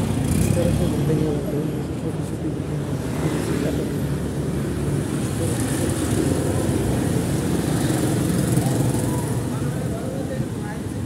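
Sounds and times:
city hum: 0:00.0 - 0:11.0
motor scooters riding past: 0:04.6 - 0:10.3.

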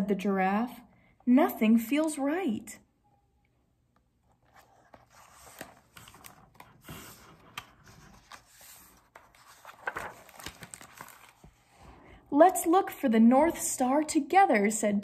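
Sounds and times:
paper pages rustling: 0:04.2 - 0:11.9.

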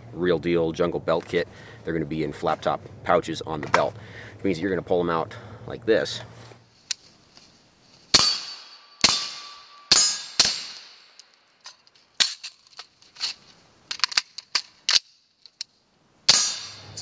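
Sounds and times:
metallic ring: 0:08.2 - 0:12.6, 0:16.3 - 0:17.0
rifle reloading clicks and rattles: 0:11.1 - 0:15.7.

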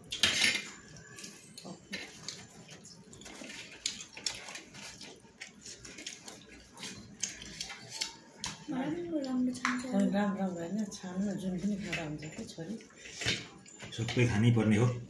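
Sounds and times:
wet chewing and lip smacks: 0:01.5 - 0:09.4.

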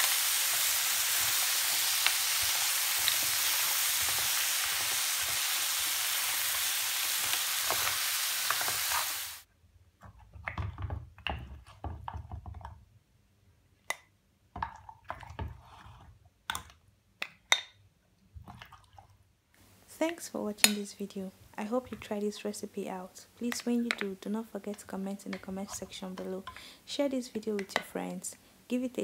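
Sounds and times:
stir fry sizzling in a frying pan: 0:00.0 - 0:09.4
wooden spoon stirring: 0:23.3 - 0:28.2.

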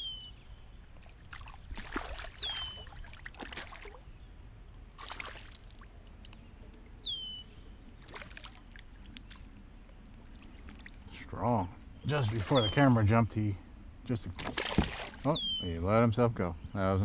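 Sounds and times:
fish splashing at water surface: 0:01.0 - 0:04.0, 0:05.0 - 0:05.9, 0:08.0 - 0:09.6, 0:14.4 - 0:15.2.

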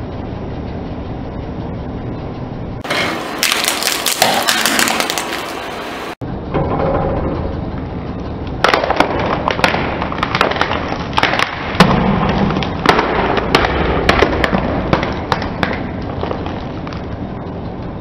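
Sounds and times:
low steady rumble: 0:00.0 - 0:18.0
tyre crushing box: 0:02.8 - 0:05.7.

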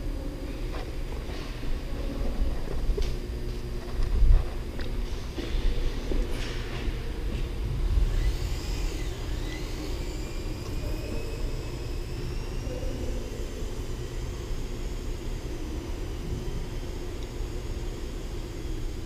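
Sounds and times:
rc airplane motor whining: 0:06.9 - 0:19.0.

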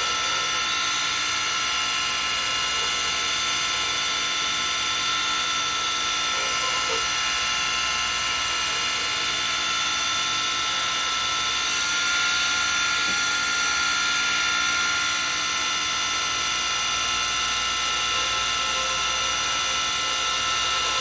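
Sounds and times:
chisel cutting spinning wood: 0:00.0 - 0:01.2, 0:01.8 - 0:07.9, 0:16.3 - 0:21.0
wood lathe whining: 0:00.0 - 0:21.0.

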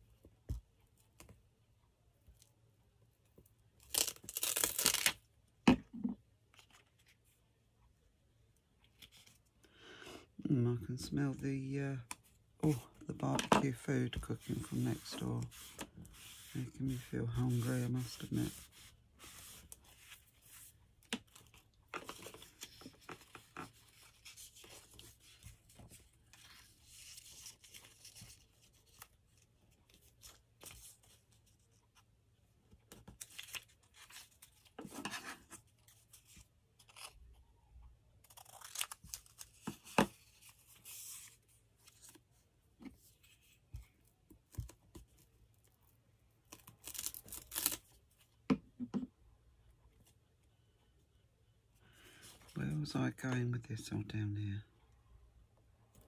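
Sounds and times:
paper tearing: 0:03.8 - 0:05.2.

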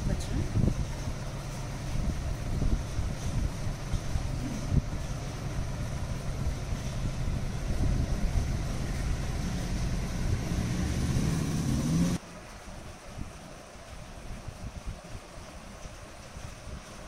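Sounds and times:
wind buffeting microphone: 0:00.0 - 0:12.2
low rumbling background noise: 0:00.0 - 0:17.0.

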